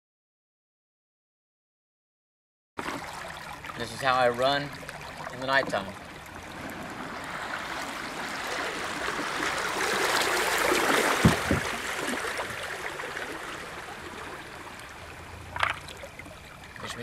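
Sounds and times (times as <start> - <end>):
water washing around boat hull: 2.8 - 17.0
low thumps: 11.1 - 11.9.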